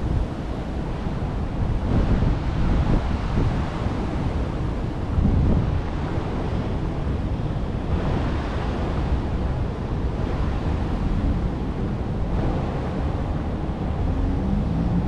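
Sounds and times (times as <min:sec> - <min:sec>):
wind noise on microphone: 0:00.0 - 0:15.0.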